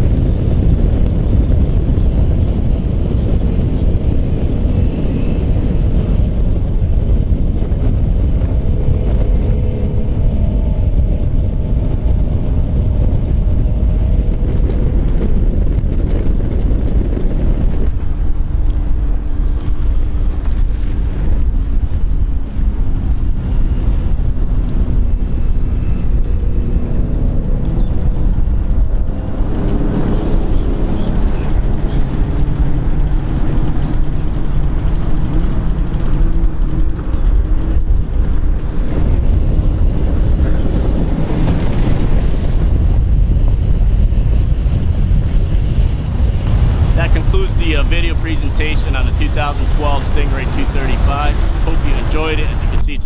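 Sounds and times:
boat engine at high speed: 0:00.0 - 0:53.0
rushing wind: 0:00.0 - 0:53.0.

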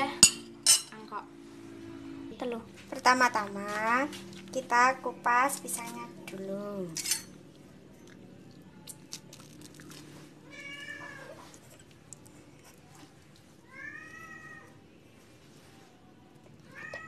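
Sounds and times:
cat meowing: 0:10.4 - 0:11.6, 0:13.6 - 0:14.7, 0:16.7 - 0:17.0.

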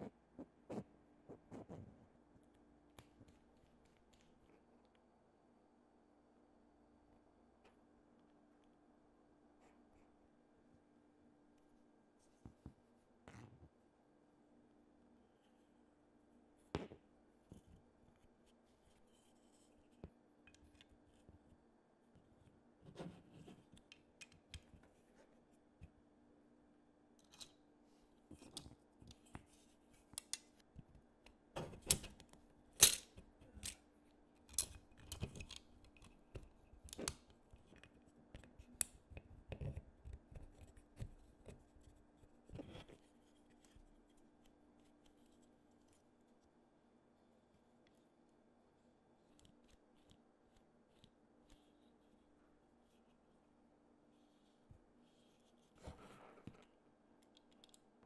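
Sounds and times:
faint steady hum: 0:00.0 - 0:58.0
snips clicks and rustles of handwork: 0:28.3 - 0:46.5.

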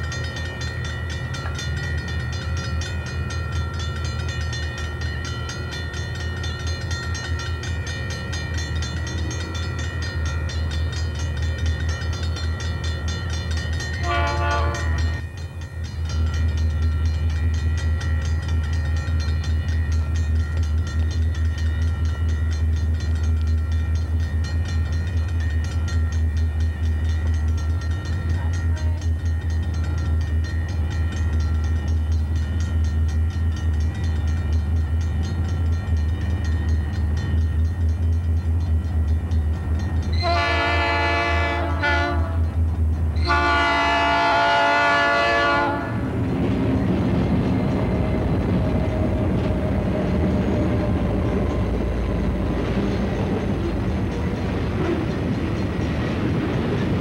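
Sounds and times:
crossing bell ringing: 0:00.0 - 0:57.0
locomotive air horn blasts: 0:14.0 - 0:15.2, 0:40.2 - 0:42.4, 0:43.2 - 0:46.0.

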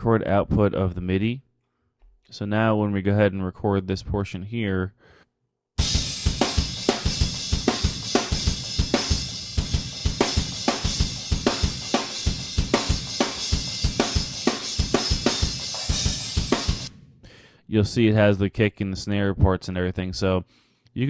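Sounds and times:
kick and snare drum beat: 0:05.8 - 0:17.0.

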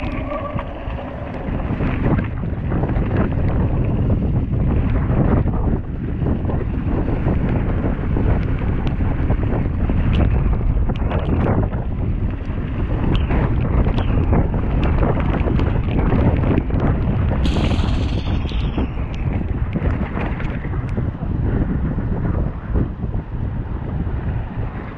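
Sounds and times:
wind buffeting microphone: 0:00.0 - 0:24.9
brief high-pitched sound: 0:17.4 - 0:19.7.

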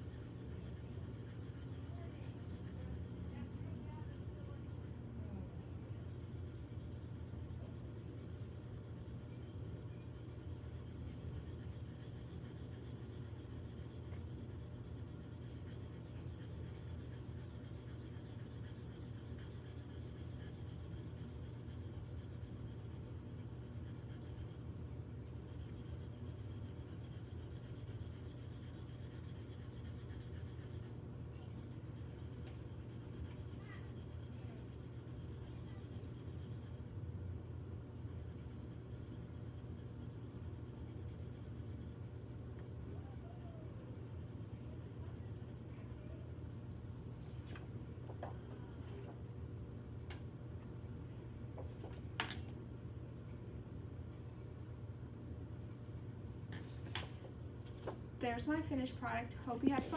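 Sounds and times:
colored pencil scratching on paper: 0:00.0 - 0:49.2, 0:56.6 - 0:59.9.

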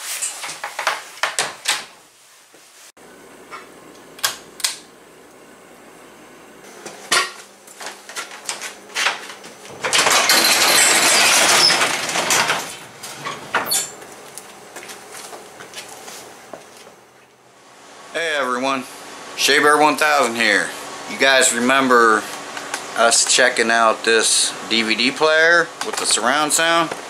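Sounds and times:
garage door panels rattling: 0:09.7 - 0:14.0.

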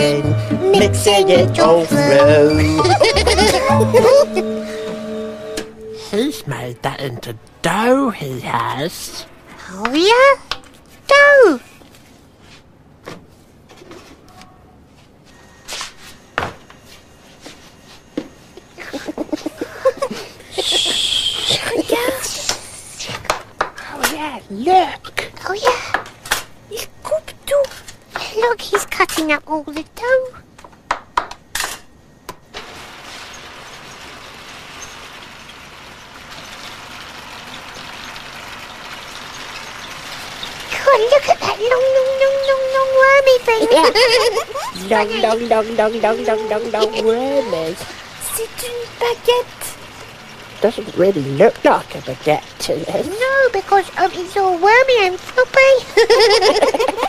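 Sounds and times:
dough-moulding machine running: 0:00.0 - 0:06.4, 0:32.5 - 0:57.0.

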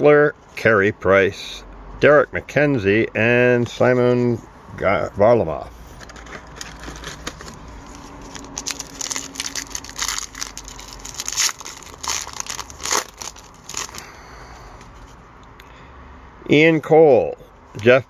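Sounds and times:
foil wrapper tearing and crinkling: 0:06.4 - 0:14.2.

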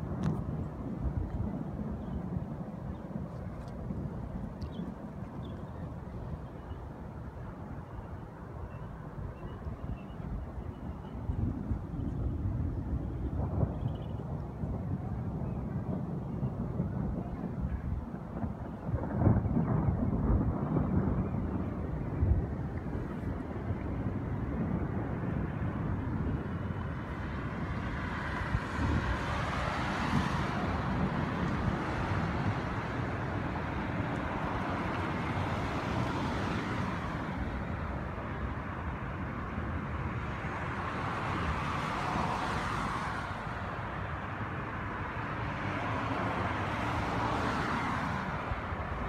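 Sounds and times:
wind buffeting microphone: 0:00.0 - 0:49.0
cars passing: 0:21.4 - 0:49.0.

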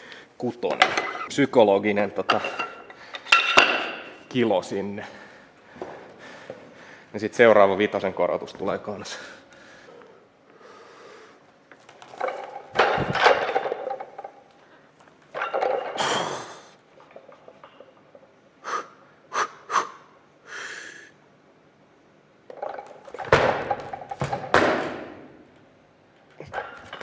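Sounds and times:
barbell plates clattering and thudding: 0:02.2 - 0:04.2, 0:11.8 - 0:14.5, 0:15.3 - 0:16.1, 0:22.5 - 0:25.3.

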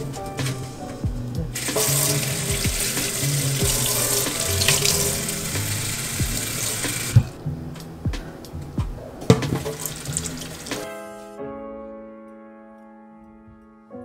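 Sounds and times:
background music: 0:00.0 - 0:14.0
tap running into metal sink: 0:01.6 - 0:07.4, 0:09.3 - 0:10.8.

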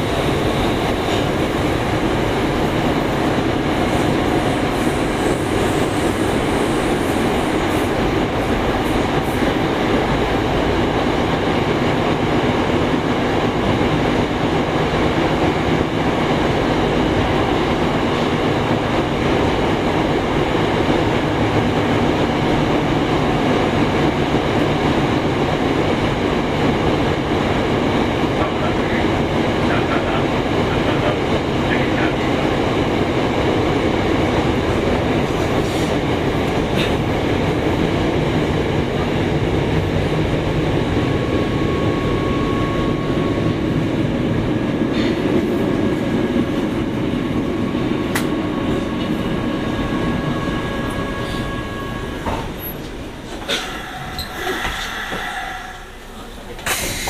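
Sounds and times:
train wheels rumbling on rail: 0:00.0 - 0:57.0
clear tone: 0:50.3 - 0:52.7.

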